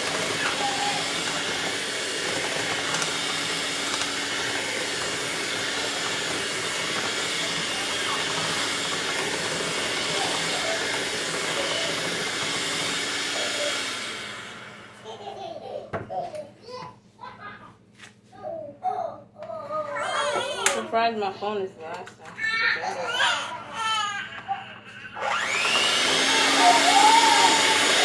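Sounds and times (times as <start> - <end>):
electric hand mixer whirring: 0.0 - 16.1, 22.6 - 28.0.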